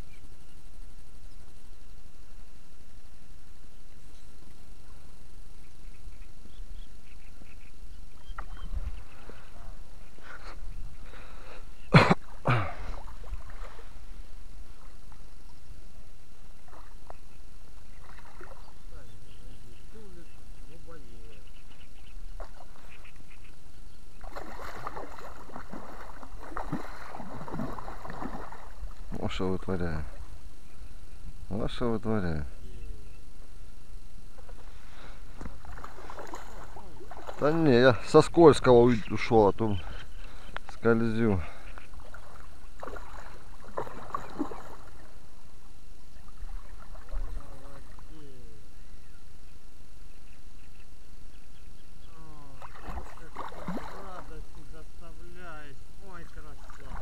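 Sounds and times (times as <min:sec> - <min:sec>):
fish thrashing and splashing: 0:24.2 - 0:29.2, 0:35.4 - 0:37.6, 0:41.9 - 0:45.2, 0:52.6 - 0:54.3.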